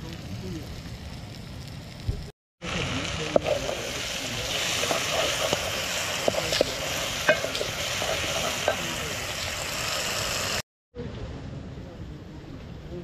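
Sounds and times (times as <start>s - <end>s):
vegetables sizzling in pot: 1.9s - 10.6s
wooden spoon knocking pot: 6.2s - 8.8s.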